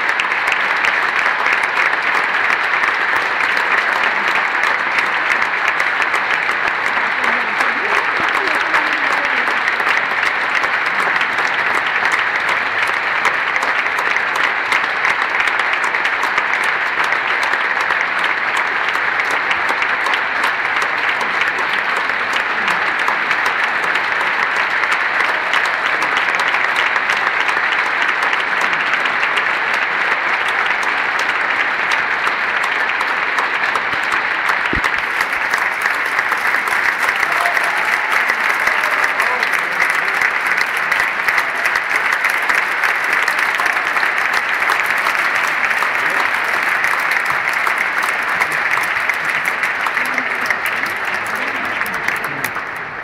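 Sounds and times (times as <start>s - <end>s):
audience applauding: 0.0s - 53.0s.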